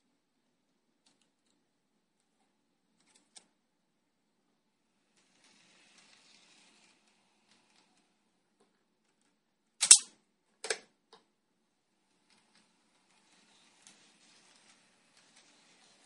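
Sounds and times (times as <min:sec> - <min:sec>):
sharp clicks: 0:09.8 - 0:10.1.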